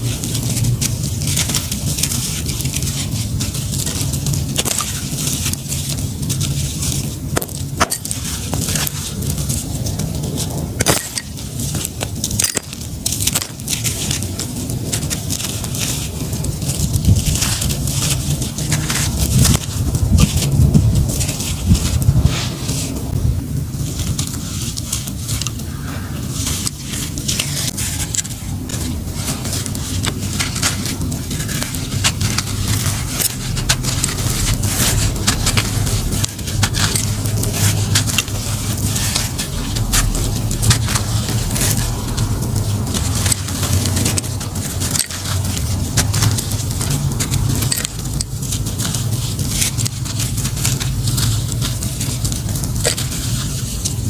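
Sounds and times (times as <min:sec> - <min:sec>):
grit pouring and trickling: 0:00.0 - 0:54.0
hands crumbling gritty dust: 0:00.0 - 0:54.0
steady low rumble: 0:00.0 - 0:54.0.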